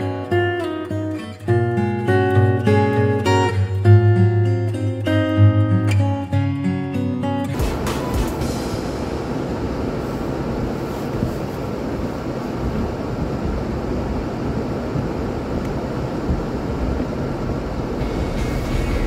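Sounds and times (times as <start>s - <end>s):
car road and engine rumble: 7.6s - 19.0s.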